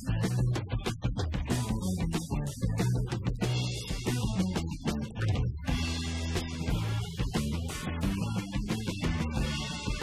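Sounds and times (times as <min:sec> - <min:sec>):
guitar-led background music: 0:00.0 - 0:10.0.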